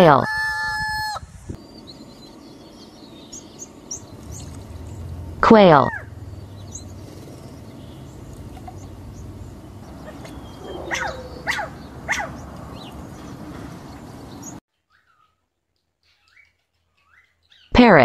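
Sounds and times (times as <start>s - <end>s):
quail calling: 3.9s - 13.6s.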